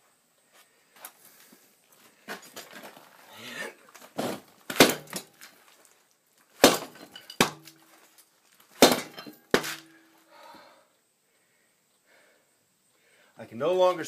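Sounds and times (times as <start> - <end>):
heavy metal-on-metal strikes: 8.8 - 9.9.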